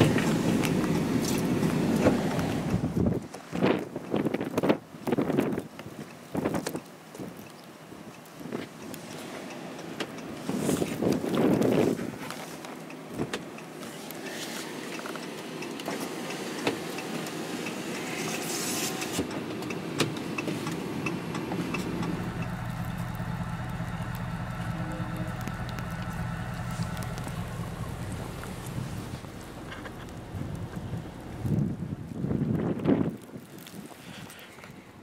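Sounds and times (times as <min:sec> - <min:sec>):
car engine from inside cabin: 0:00.0 - 0:03.0, 0:13.6 - 0:32.0.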